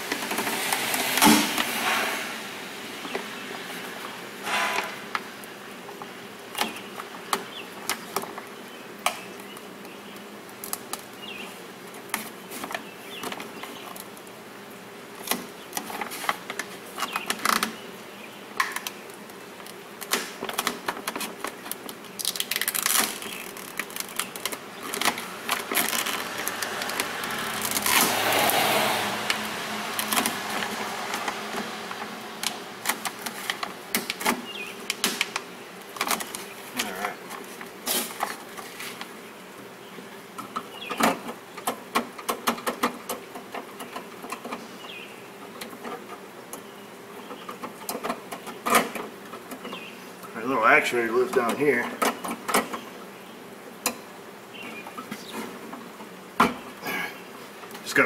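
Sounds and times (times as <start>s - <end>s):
plastic sheet crinkling: 20.3s - 28.7s.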